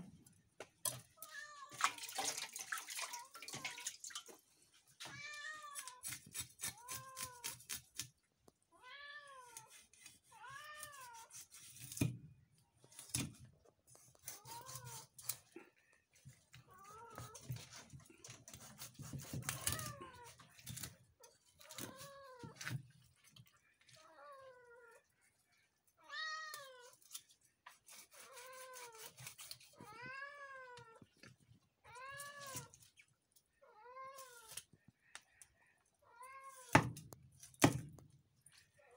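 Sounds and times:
knife scraping fish scales: 5.7 - 8.1, 9.4 - 12.2, 12.9 - 15.5, 17.2 - 21.0, 26.8 - 29.8
cat meowing: 8.8 - 9.8.

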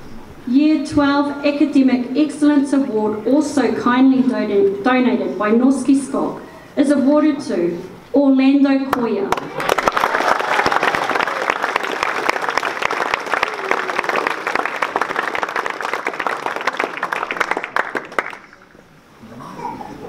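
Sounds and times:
audience applauding: 9.3 - 18.8.

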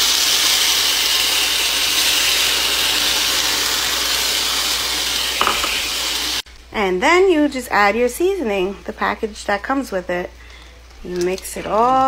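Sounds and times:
water sizzling in hot pan: 0.0 - 6.4.

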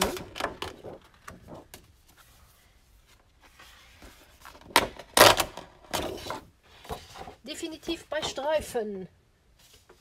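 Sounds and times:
paper rustling: 0.0 - 4.7.

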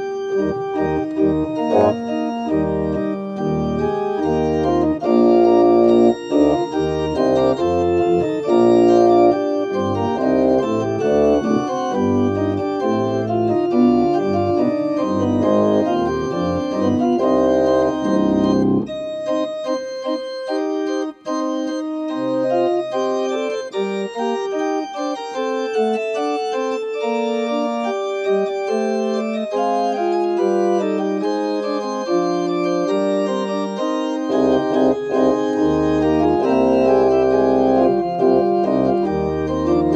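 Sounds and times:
pipe organ chords: 0.0 - 39.9
deep organ bass notes: 0.2 - 19.5, 28.3 - 39.9.

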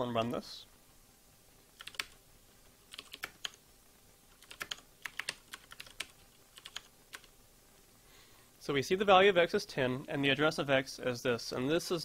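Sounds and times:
keyboard typing: 1.8 - 2.2, 2.9 - 3.6, 4.3 - 7.3.

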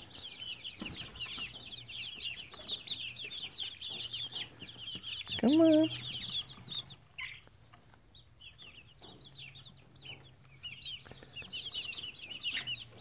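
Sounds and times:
chicks peeping: 0.0 - 13.0.

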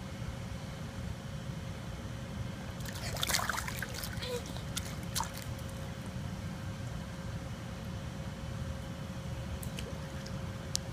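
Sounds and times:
faint hum: 0.0 - 10.9
small water splashes: 2.8 - 5.8.

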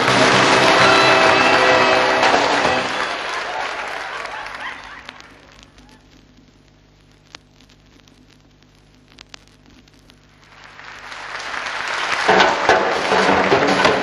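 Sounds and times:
audience applause: 0.0 - 6.0, 10.3 - 14.0
faint clicks: 4.4 - 11.2.

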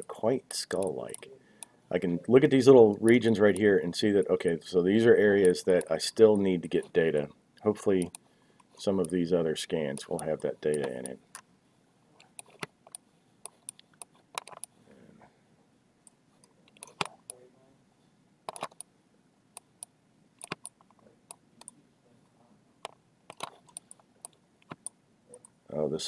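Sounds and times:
computer mouse clicks: 8.0 - 8.2, 12.2 - 14.7, 16.1 - 17.4, 18.5 - 18.9, 19.6 - 21.8, 22.8 - 25.6.

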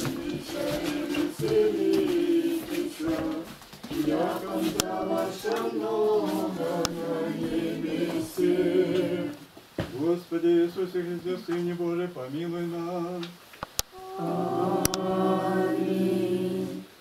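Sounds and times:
group of voices chanting: 14.0 - 16.9.

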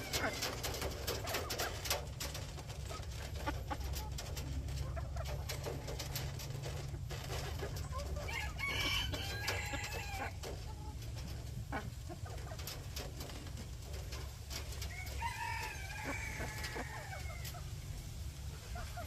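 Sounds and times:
roosters crowing: 0.0 - 2.0, 7.8 - 10.8, 14.7 - 17.7.

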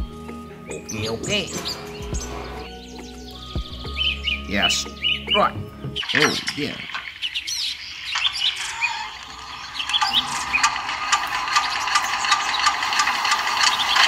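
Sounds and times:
birds chirping: 0.0 - 14.0
model engine running with rapid ticking: 8.1 - 14.0
hand crank turning: 8.2 - 14.0.

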